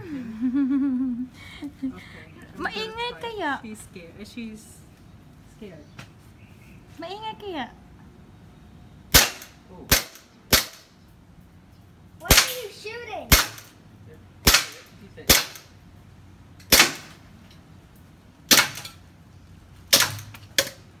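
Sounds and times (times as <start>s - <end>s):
toy gun firing sharp cracks: 9.1s - 10.9s, 12.3s - 13.8s, 14.4s - 15.7s, 16.6s - 17.2s, 18.5s - 18.9s, 19.9s - 20.8s.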